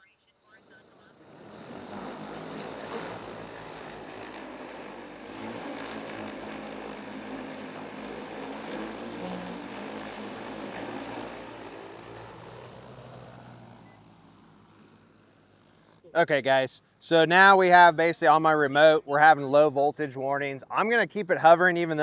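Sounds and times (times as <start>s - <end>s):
faint high whine: 0.0s - 17.1s
drone propeller hum: 0.5s - 16.1s.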